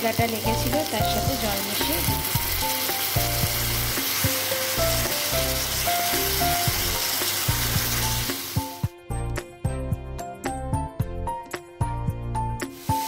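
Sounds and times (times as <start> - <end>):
potatoes sizzling in hot oil: 0.0 - 8.9, 12.7 - 13.0.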